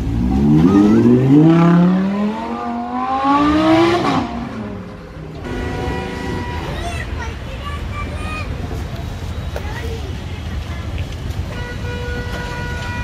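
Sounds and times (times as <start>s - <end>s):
car engine accelerating hard: 0.0s - 4.8s.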